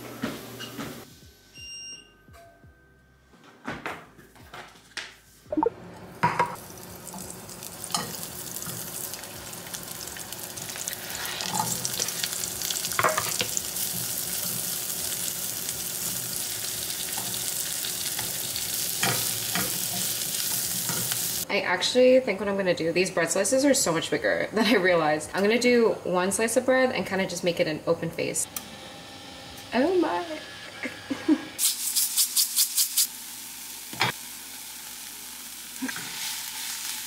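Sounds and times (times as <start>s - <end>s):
short console beeps: 5.5s - 5.7s
food sizzling in oil: 6.1s - 21.5s, 31.6s - 37.0s.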